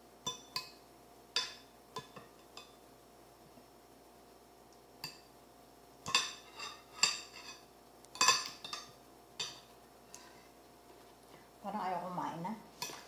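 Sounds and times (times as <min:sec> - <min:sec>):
cutlery clinking on a plate: 0:06.0 - 0:09.7.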